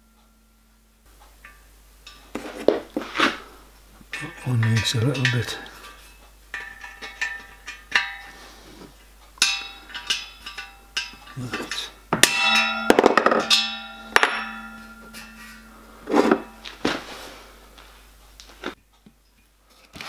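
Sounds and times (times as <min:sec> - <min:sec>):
metal bracket clinking on metal: 0:04.1 - 0:08.4, 0:09.4 - 0:16.8.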